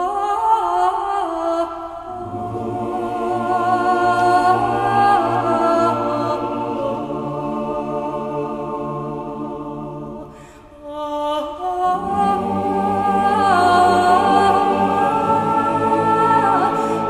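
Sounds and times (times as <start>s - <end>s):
sustained musical backing: 2.2s - 10.3s, 11.9s - 17.0s
woman singing long held notes: 3.3s - 6.9s, 10.6s - 17.0s.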